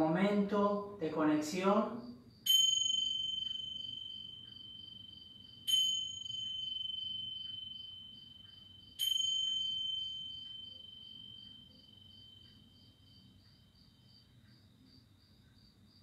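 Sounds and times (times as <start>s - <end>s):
small hand cymbals ringing: 2.5s - 11.8s.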